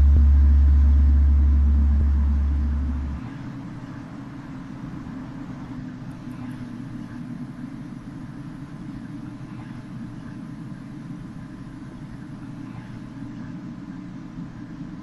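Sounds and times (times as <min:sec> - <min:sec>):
deep rumbling drone: 0:00.0 - 0:04.2
faint low hum: 0:00.0 - 0:15.0.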